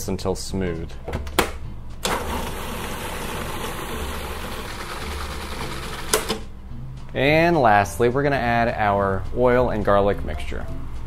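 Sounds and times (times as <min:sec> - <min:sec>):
food processor motor running: 0:02.1 - 0:06.3.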